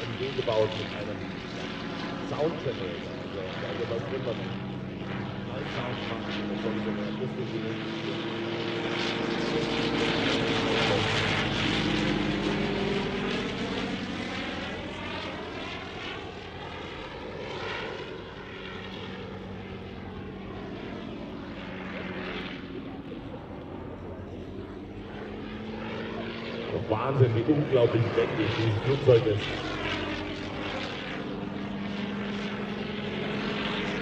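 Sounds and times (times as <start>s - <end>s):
propeller plane flying past: 0.0s - 34.0s.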